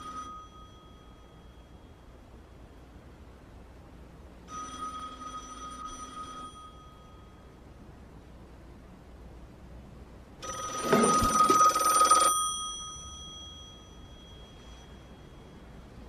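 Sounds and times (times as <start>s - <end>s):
telephone bell ringing: 0.0s - 2.2s, 4.5s - 7.5s, 10.4s - 15.8s.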